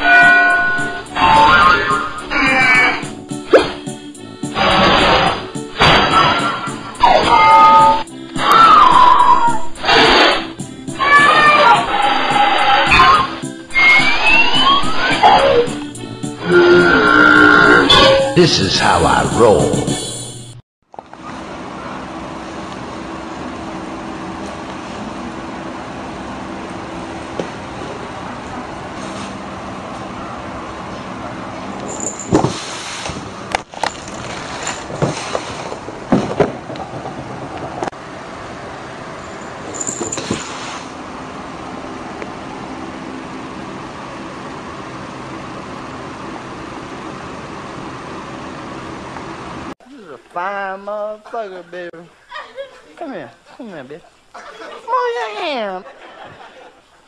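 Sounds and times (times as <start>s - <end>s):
background hum and hiss: 18.4s - 57.0s.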